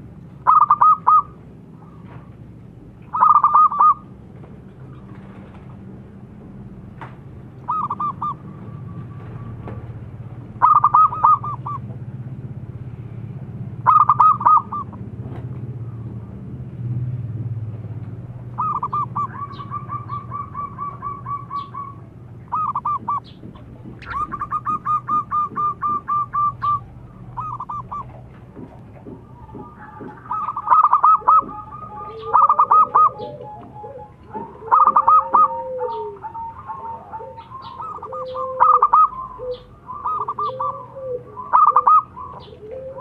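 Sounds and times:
dove cooing: 0.0 - 2.4, 3.1 - 4.2, 7.6 - 11.9, 13.8 - 15.1, 18.4 - 43.0.

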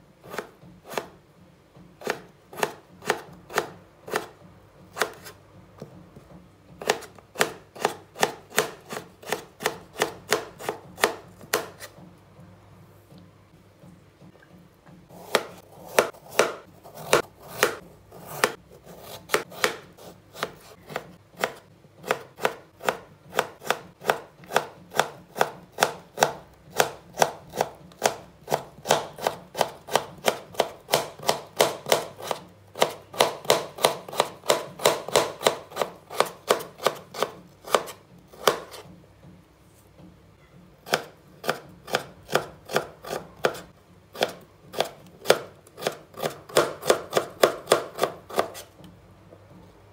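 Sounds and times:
knife cutting on wooden board: 0.2 - 1.2, 2.0 - 5.4, 6.8 - 12.0, 15.1 - 38.9, 40.8 - 48.8.

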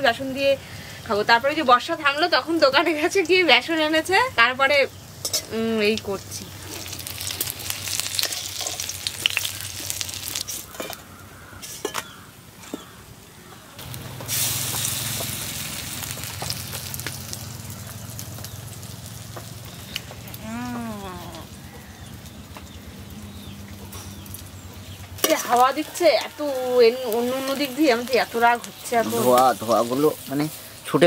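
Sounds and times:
fritters sizzling in oil: 0.0 - 13.0, 13.8 - 31.0
spatula clinking and scraping pan: 5.2 - 5.6, 8.0 - 9.0, 10.5 - 11.0, 11.6 - 12.9.

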